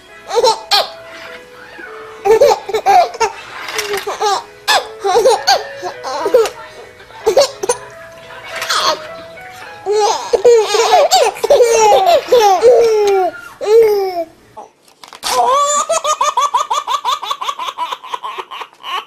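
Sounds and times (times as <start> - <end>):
baby laughing: 0.3 - 1.0, 2.2 - 6.6, 7.2 - 7.8, 8.6 - 9.0, 9.8 - 14.7, 15.3 - 19.0.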